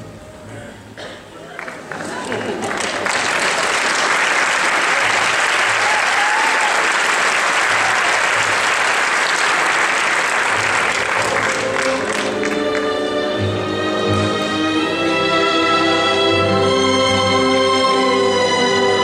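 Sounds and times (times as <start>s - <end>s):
audience applauding: 1.4s - 13.1s
orchestral music: 7.6s - 19.0s.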